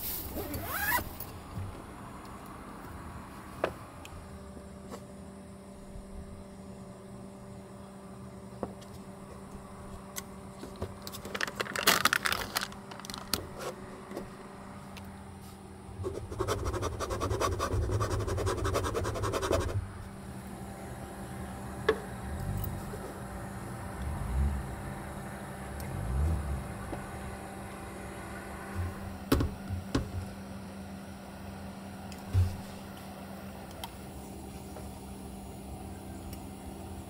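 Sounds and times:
foil lid crinkling and tearing: 0:11.2 - 0:13.5
low hum: 0:19.2 - 0:32.8.

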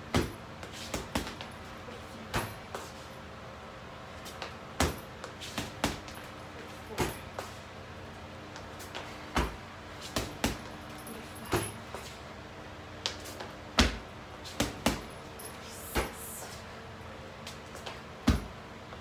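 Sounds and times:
punches thudding on heavy bag: 0:00.0 - 0:01.4, 0:04.8 - 0:06.2, 0:09.3 - 0:10.7, 0:11.4 - 0:11.8, 0:13.8 - 0:15.1, 0:15.8 - 0:16.4, 0:18.2 - 0:18.6.

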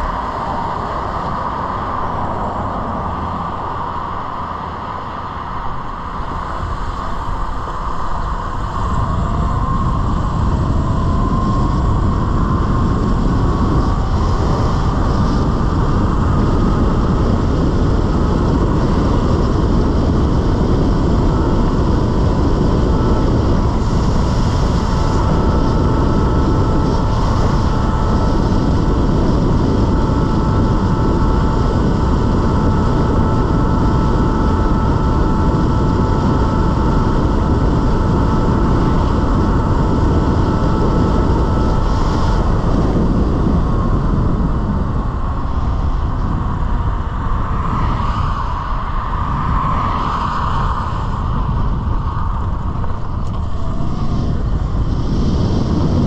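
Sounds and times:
electric motorbike motor whining: 0:00.0 - 0:56.0
rush of wind: 0:00.0 - 0:56.0.

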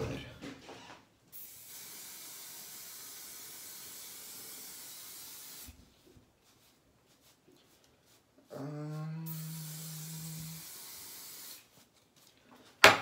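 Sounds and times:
aerosol can spraying: 0:01.3 - 0:08.2, 0:09.3 - 0:12.3.

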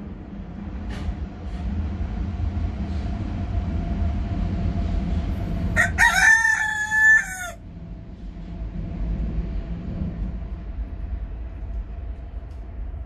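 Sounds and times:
low rumble: 0:00.0 - 0:13.0
rooster crowing: 0:05.8 - 0:07.6.

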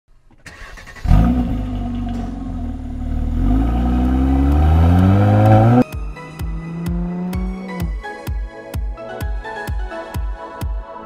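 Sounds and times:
car engine revving: 0:00.5 - 0:08.0.

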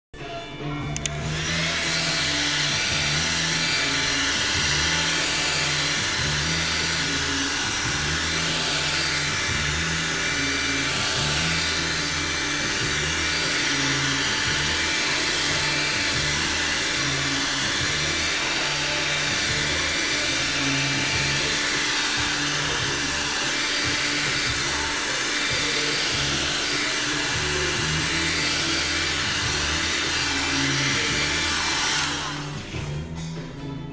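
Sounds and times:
heat gun fan blowing hot air: 0:00.9 - 0:33.2.

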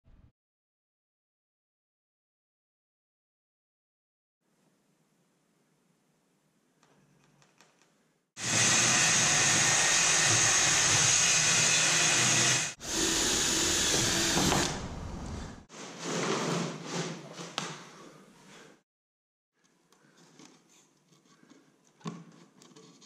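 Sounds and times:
cordless drill boring plywood: 0:08.4 - 0:14.9.

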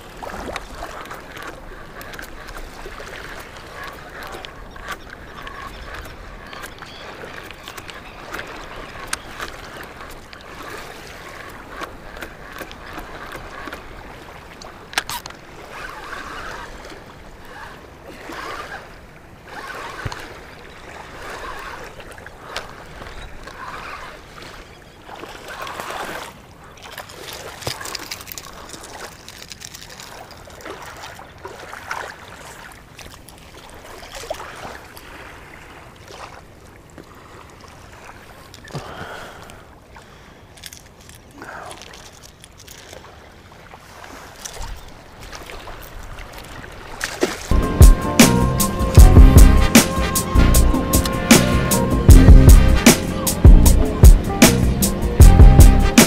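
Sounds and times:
small waves lapping: 0:00.0 - 0:48.9
sharp clicks of rod and reel: 0:00.5 - 0:20.6.

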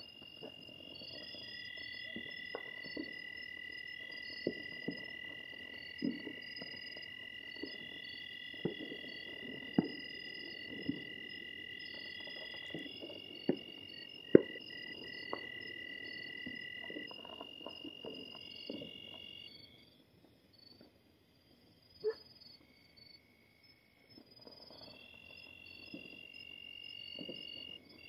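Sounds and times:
distant firecrackers popping: 0:00.0 - 0:19.4, 0:27.0 - 0:28.0
night insects chirping: 0:00.0 - 0:28.0.

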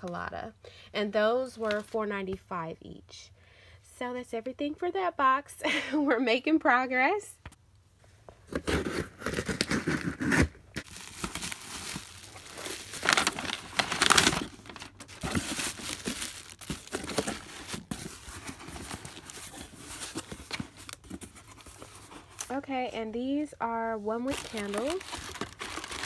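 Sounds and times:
scissors slitting packing tape: 0:08.6 - 0:11.5
plastic packing crinkling: 0:08.7 - 0:22.1, 0:24.2 - 0:26.0.

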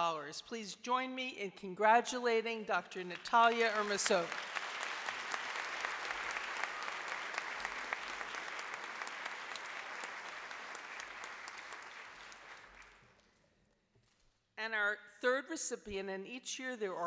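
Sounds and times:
audience applauding: 0:03.2 - 0:13.3.

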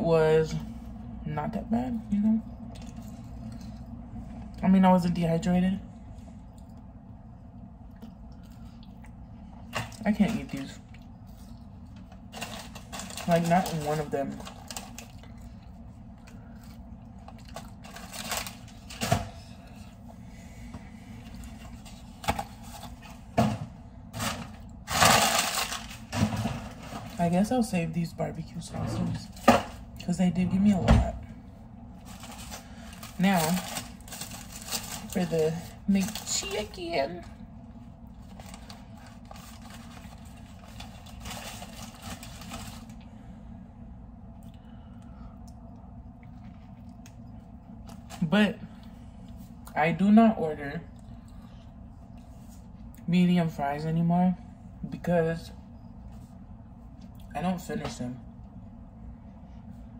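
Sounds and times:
steady low hum: 0:00.0 - 0:59.9
food packaging clicks and rustles: 0:09.6 - 0:19.8, 0:24.2 - 0:27.2, 0:32.0 - 0:36.8, 0:38.1 - 0:43.0
paper wrapper crinkling: 0:12.2 - 0:15.6, 0:17.2 - 0:19.1, 0:24.2 - 0:26.2, 0:32.0 - 0:36.8, 0:38.2 - 0:43.0.

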